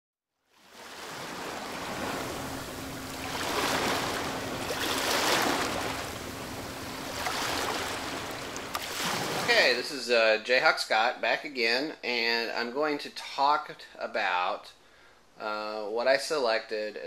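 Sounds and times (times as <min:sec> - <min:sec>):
ocean surf rushing: 0:00.7 - 0:09.8.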